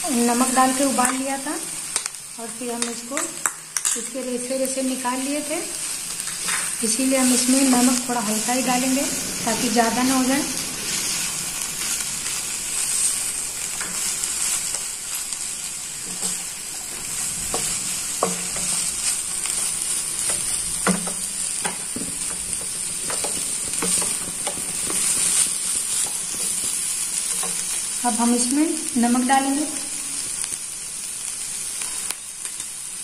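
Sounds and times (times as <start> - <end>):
food sizzling in a pan: 0.0 - 33.0
spatula scraping a pan: 16.0 - 27.9.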